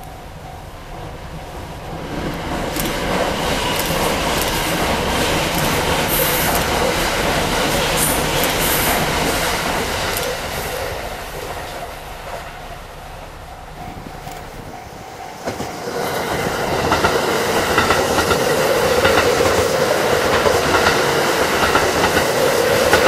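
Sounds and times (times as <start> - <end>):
train wheels rushing on rails: 0.0 - 23.0.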